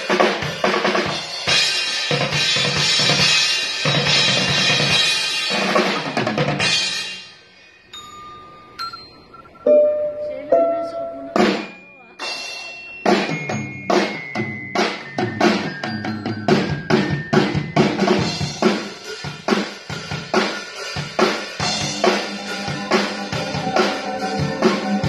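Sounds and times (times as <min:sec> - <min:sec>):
drum kit steady beat: 0:00.0 - 0:07.4, 0:11.3 - 0:25.0
held higher instrument notes: 0:07.2 - 0:13.1.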